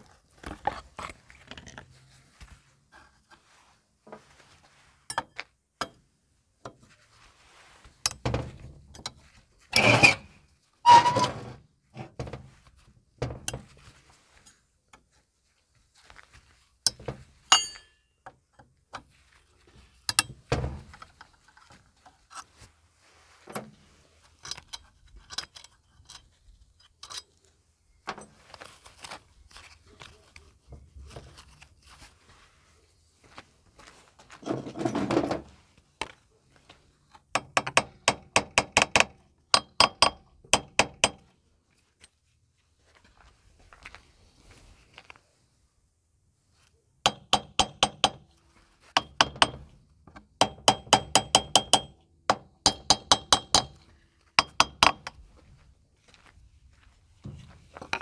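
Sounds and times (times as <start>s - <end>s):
rattling scrapes: 9.7s - 11.6s, 34.4s - 35.6s
metal tools clinking on engine: 17.5s - 18.0s.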